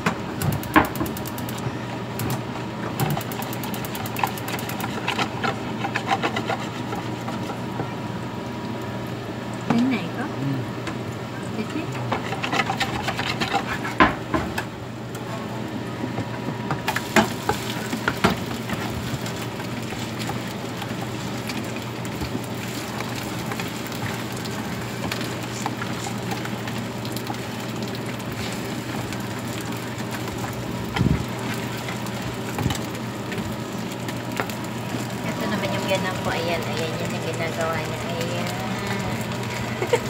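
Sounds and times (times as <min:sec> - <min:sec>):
batter sizzling in a frying pan: 0:00.0 - 0:15.6, 0:16.6 - 0:40.0
metal spatula scraping a pan: 0:05.0 - 0:07.4.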